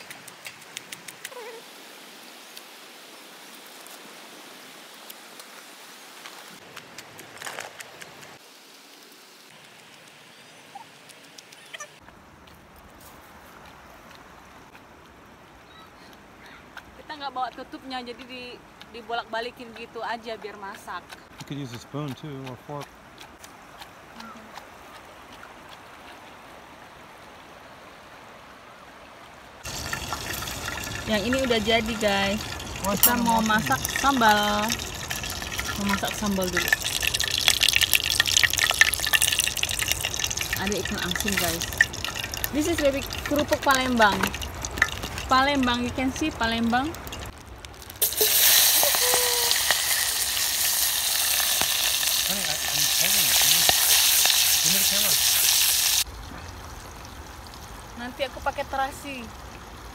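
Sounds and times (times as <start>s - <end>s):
wood fire crackling and hissing: 0.1s - 11.6s, 29.6s - 59.2s.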